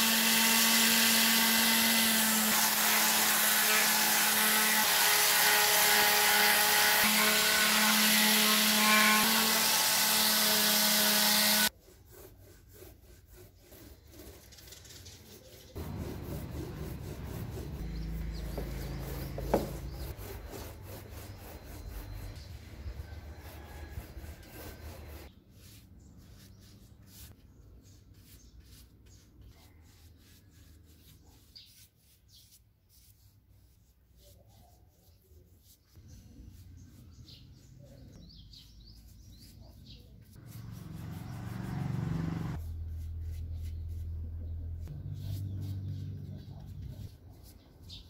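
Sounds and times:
paintbrush strokes on wood: 11.7s - 38.1s, 39.0s - 48.0s
paint roller rolling on wood: 13.1s - 25.3s
birds chirping: 17.4s - 23.9s.

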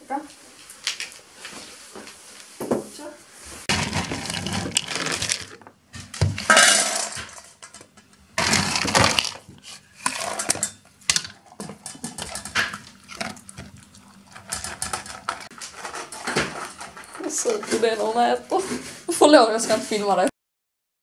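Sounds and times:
kibble poured into metal bowl: 3.7s - 5.6s
dog eating from metal bowl: 8.5s - 18.4s.

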